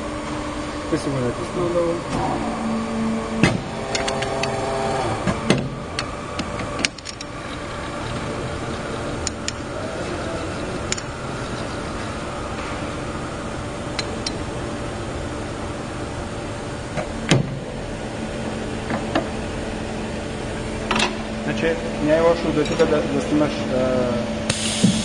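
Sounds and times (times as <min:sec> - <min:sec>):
hydraulic machine running: 0:00.0 - 0:25.0
whining tone: 0:00.9 - 0:14.0.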